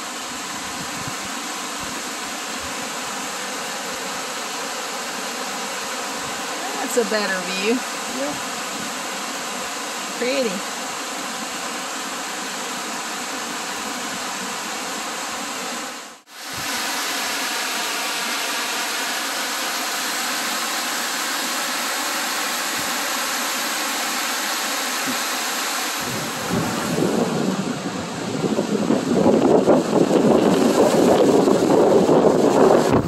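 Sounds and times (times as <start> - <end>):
waterfall rushing over rock: 0.0 - 33.0
waves on a lake: 0.0 - 33.0
wind buffeting microphone: 0.6 - 2.0, 26.0 - 33.0.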